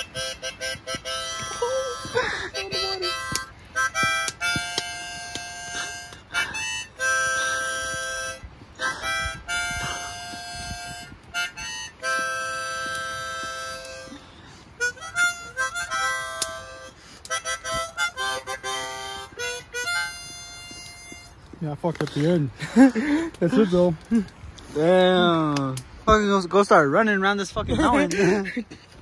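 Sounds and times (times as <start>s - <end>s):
harmonica playing a tune: 0.0s - 21.5s.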